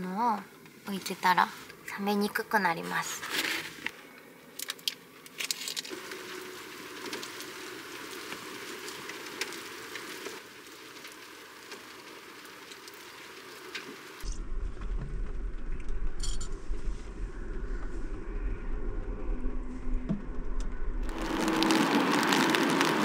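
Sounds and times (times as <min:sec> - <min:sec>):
light rain pattering: 0:03.8 - 0:15.4, 0:21.1 - 0:23.0
vehicle engine rumble: 0:14.2 - 0:23.0.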